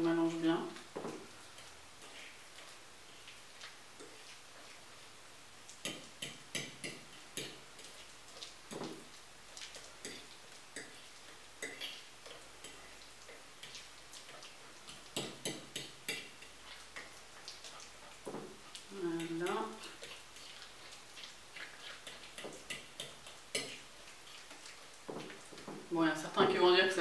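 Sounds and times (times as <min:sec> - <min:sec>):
fork scraping a plate: 0:19.2 - 0:25.6.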